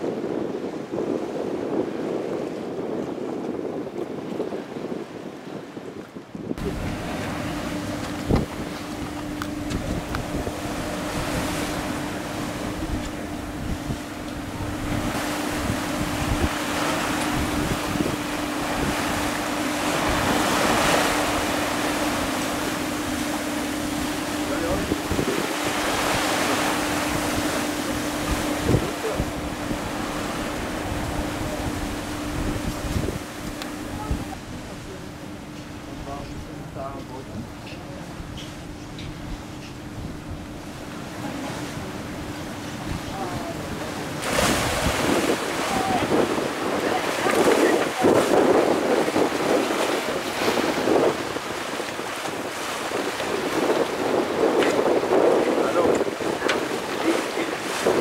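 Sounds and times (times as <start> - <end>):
waves rushing along hull: 0.0 - 58.0
wind buffeting microphone: 0.0 - 58.0
steady low hum: 6.6 - 47.0.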